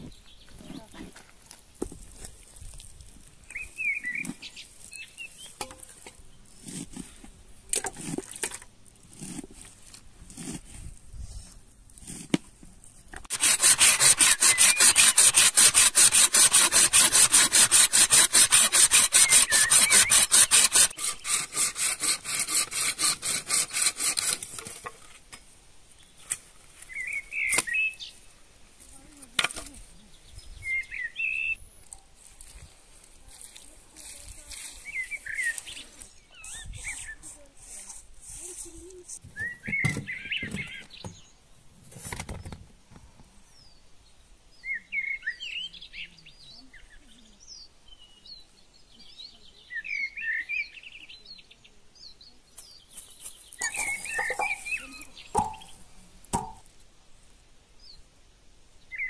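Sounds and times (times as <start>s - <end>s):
bird chirping: 3.5s - 6.6s, 26.9s - 28.2s, 30.0s - 32.1s, 34.8s - 37.4s, 38.6s - 41.4s, 43.5s - 56.6s
hand saw cutting log: 6.6s - 10.9s, 13.2s - 25.0s, 53.6s - 55.8s, 56.4s - 56.6s
soft knocks: 56.4s - 56.6s.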